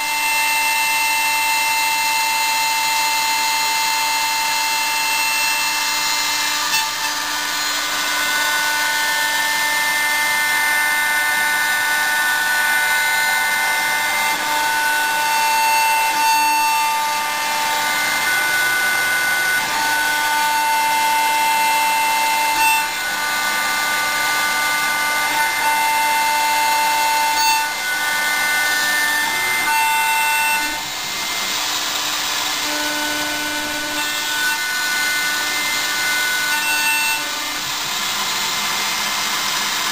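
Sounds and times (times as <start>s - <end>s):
milling machine spindle cutting: 0.0s - 39.9s
high whining servo tones: 0.1s - 39.9s.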